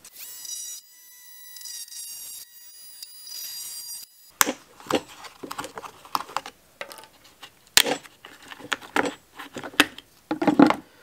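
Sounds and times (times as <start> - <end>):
multi-tool whining: 0.0 - 6.5
hands handling plastic lid: 4.4 - 10.9.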